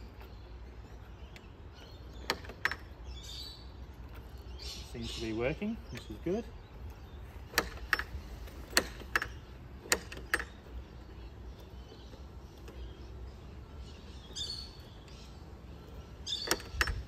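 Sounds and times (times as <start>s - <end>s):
gate lock latch clicking: 6.9s - 10.7s, 16.4s - 17.0s.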